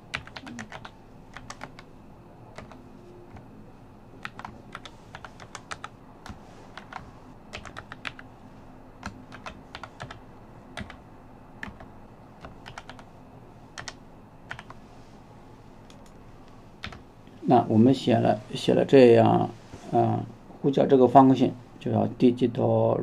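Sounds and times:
computer keyboard typing: 0.1s - 1.9s, 2.5s - 3.5s, 4.2s - 8.3s, 9.0s - 10.2s, 10.8s - 11.0s, 11.6s - 13.1s, 13.8s - 14.8s, 15.8s - 16.2s, 16.8s - 17.0s.

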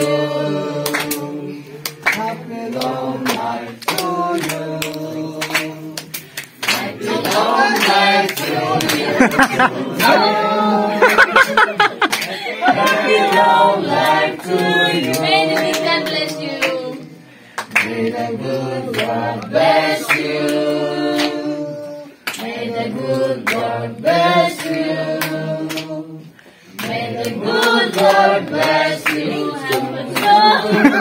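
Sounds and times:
group singing unaccompanied: 0.0s - 31.0s
hand claps: 0.8s - 10.3s, 11.0s - 17.0s, 20.0s - 21.4s, 22.2s - 22.6s, 24.6s - 26.0s, 26.7s - 31.0s.

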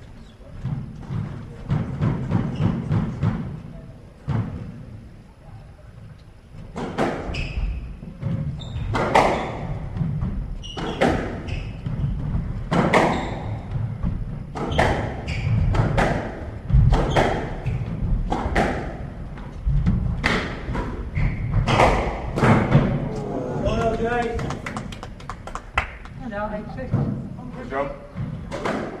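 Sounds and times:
squash ball hitting rackets and walls: 0.6s - 4.8s, 6.6s - 23.2s, 26.9s - 27.4s, 28.1s - 29.0s
shoes squeaking on wooden floor: 7.2s - 18.3s, 20.7s - 21.9s.

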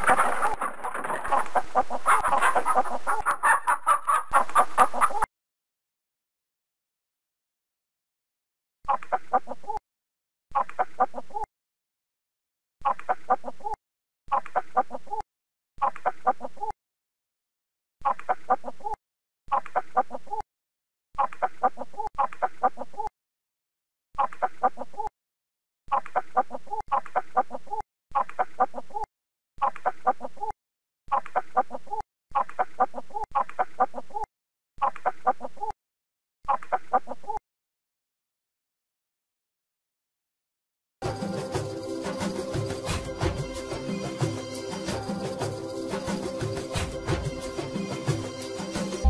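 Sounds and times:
chicken clucking: 0.0s - 5.3s, 12.8s - 15.2s, 31.1s - 35.7s.

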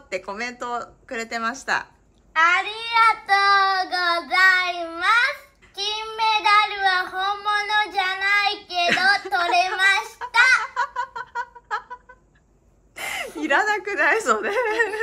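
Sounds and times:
girl speaking in sing-song voice: 2.4s - 10.7s.

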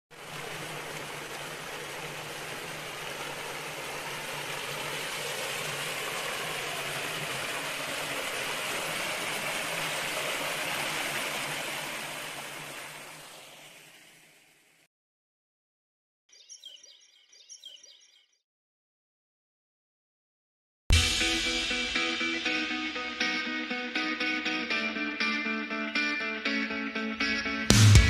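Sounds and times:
water splashing down cascade: 0.1s - 14.8s.

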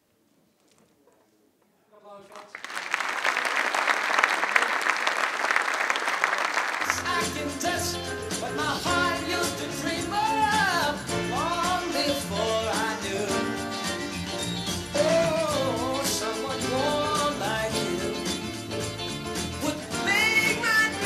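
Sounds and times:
song with singing voice: 6.8s - 21.0s.

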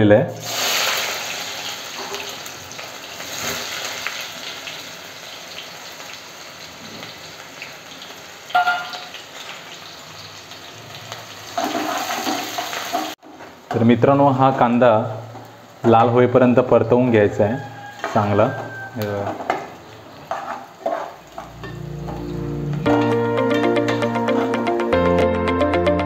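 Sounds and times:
onions sizzling in hot oil: 0.4s - 22.8s
steel plate knocking against pot: 8.6s - 9.0s.

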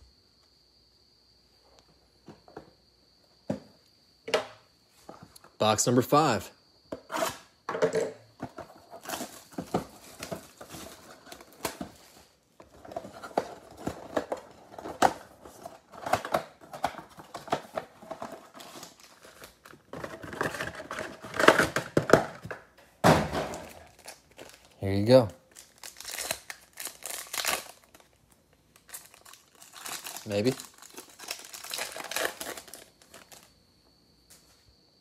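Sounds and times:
cardboard and foil packs handled: 8.4s - 22.6s, 23.5s - 33.5s
plastic wrap crinkling and tearing: 18.4s - 21.3s, 23.6s - 24.8s, 25.4s - 33.5s.

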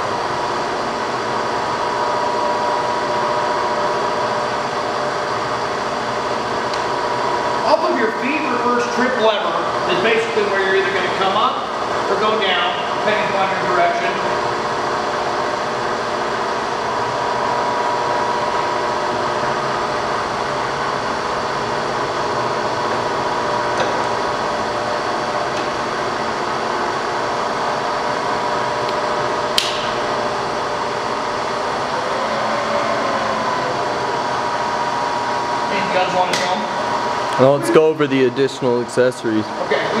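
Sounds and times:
milling machine spindle whine: 0.0s - 40.0s
sharp click: 29.6s - 29.9s.

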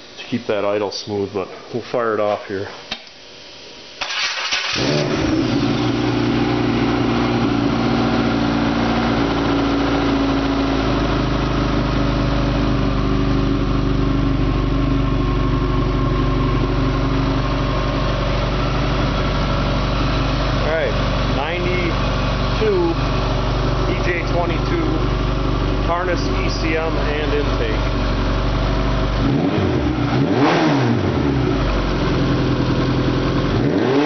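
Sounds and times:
engine starting and idling: 4.0s - 6.2s.

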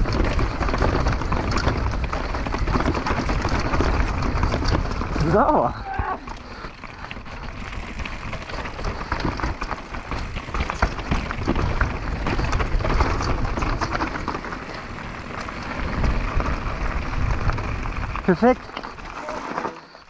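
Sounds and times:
bike rattling and knocking: 0.0s - 20.0s
tyres crunching on gravel: 0.0s - 20.0s
wind rumble on microphone: 14.8s - 18.3s.

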